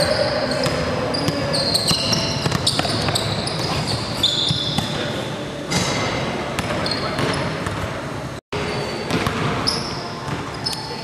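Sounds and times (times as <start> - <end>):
sneakers squeaking on hardwood: 0.0 - 5.1, 6.6 - 7.9, 8.6 - 11.0
basketball bouncing: 0.6 - 5.0, 6.6 - 7.9, 8.6 - 10.5.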